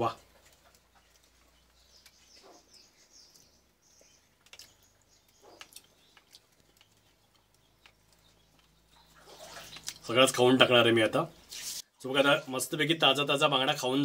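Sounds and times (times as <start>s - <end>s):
faint eating clicks: 4.1s - 10.1s
man chewing: 4.3s - 10.0s.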